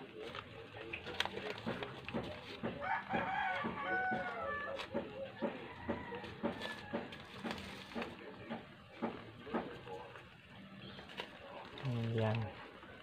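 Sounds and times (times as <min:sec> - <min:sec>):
plastic packet crinkling: 0:00.0 - 0:05.0, 0:10.1 - 0:13.0
rooster crowing: 0:02.8 - 0:07.2.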